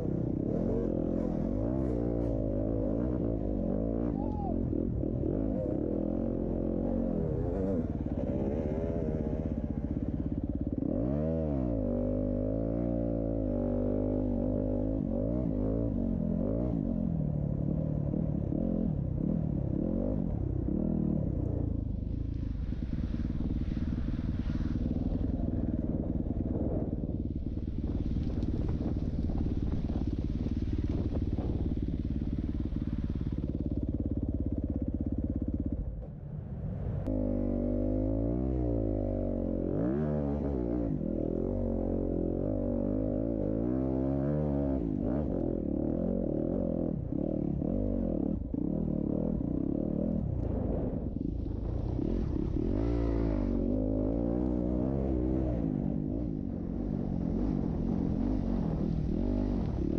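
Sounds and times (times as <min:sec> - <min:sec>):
dirt bike engine revving: 0:52.0 - 0:59.9.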